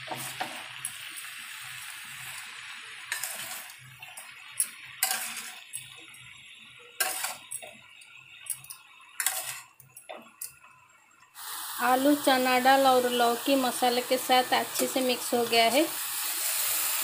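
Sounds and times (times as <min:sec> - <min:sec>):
vegetables sizzling in a pan: 0:00.0 - 0:17.0
metal spatula scraping a pan: 0:03.0 - 0:05.8, 0:07.0 - 0:07.8, 0:08.5 - 0:09.8.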